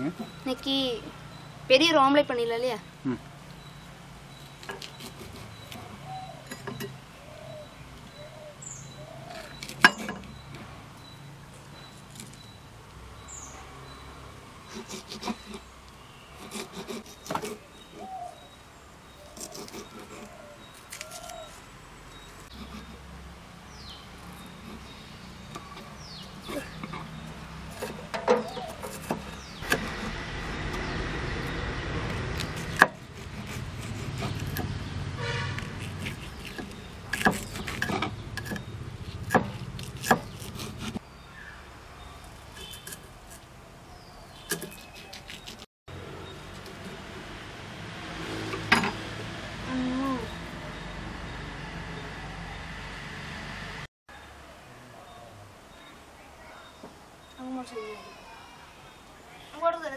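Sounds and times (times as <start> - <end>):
knives chopping on wooden boards: 16.5 - 17.6, 35.5 - 38.6, 39.2 - 41.0.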